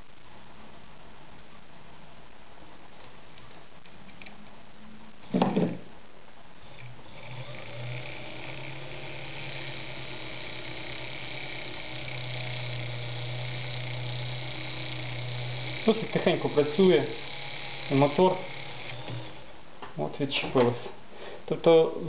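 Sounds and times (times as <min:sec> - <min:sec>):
sewing machine motor humming: 0:06.6 - 0:19.5.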